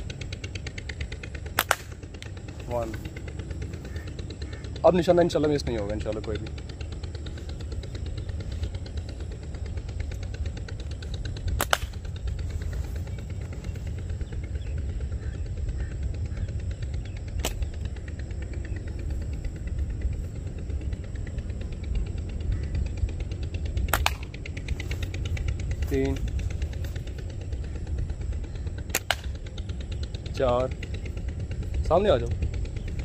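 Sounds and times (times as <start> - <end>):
steady low rumble: 0.0 - 33.0
slingshot cracks: 1.4 - 2.3, 11.6 - 12.2, 17.4 - 17.8, 23.9 - 24.4, 28.9 - 29.4.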